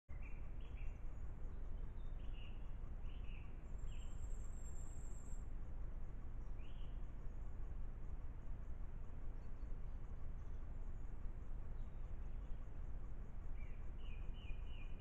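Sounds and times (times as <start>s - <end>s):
bird chirps: 0.1s - 5.4s, 6.5s - 7.1s, 13.5s - 15.0s
low rumble and hiss: 0.1s - 15.0s.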